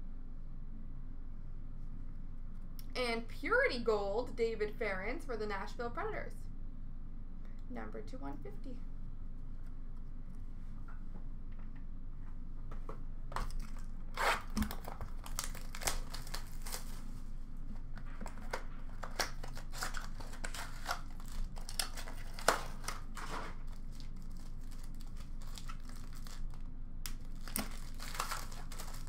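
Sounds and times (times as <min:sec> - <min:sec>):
low hum: 0:00.0 - 0:29.0
foil wrappers crinkling and tearing: 0:13.4 - 0:29.0
cards being handled: 0:17.7 - 0:29.0.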